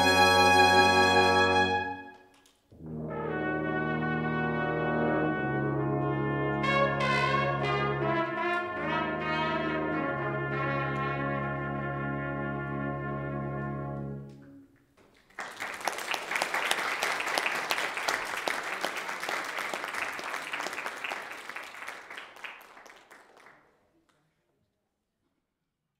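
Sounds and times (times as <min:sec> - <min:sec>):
brass ensemble chord: 0:00.0 - 0:02.2, 0:02.8 - 0:14.6
congregation applauding: 0:15.0 - 0:23.8.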